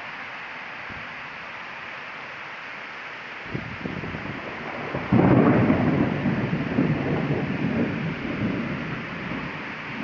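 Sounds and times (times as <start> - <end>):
heavy rain pouring: 0.0 - 10.0
loud thunderclap: 3.5 - 10.0
low rumble of thunder: 3.5 - 10.0.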